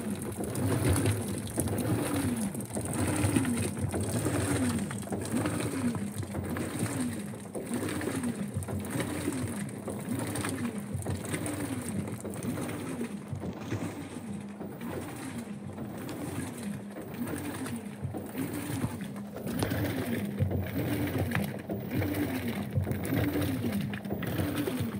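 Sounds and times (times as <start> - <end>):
tub churning: 0.0 - 24.9
washing machine motor whining: 0.0 - 24.9.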